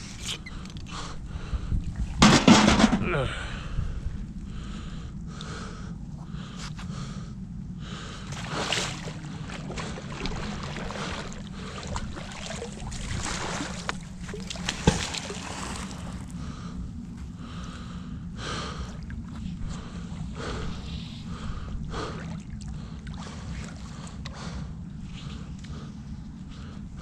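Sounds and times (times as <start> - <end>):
steady low rumble: 0.0 - 27.0
sharp knock: 2.2 - 3.1.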